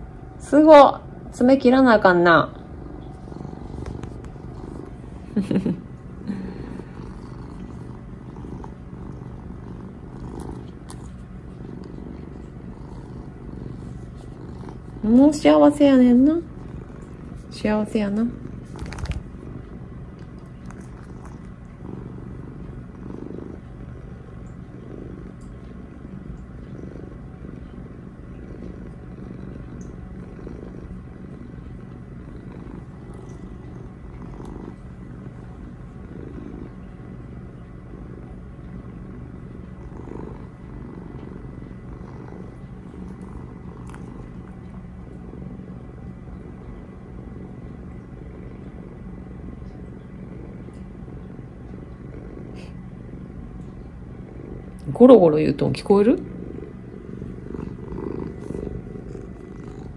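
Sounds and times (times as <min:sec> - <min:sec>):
cat purring: 0:00.0 - 0:59.9.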